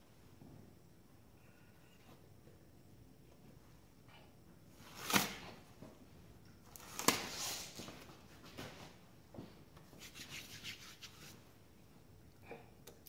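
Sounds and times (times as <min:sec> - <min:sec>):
hands rubbing and rustling: 0:06.8 - 0:11.5.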